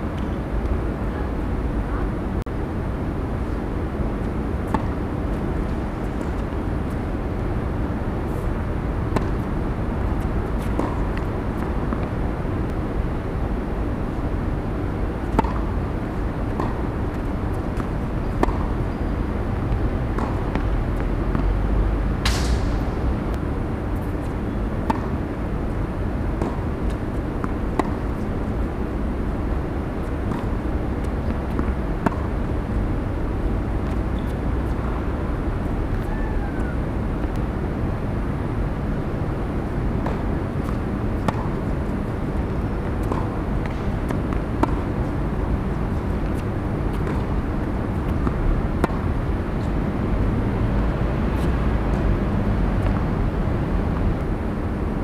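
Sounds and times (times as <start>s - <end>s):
low outdoor rumble: 0.0s - 55.0s
rackets striking tennis ball: 22.2s - 22.9s.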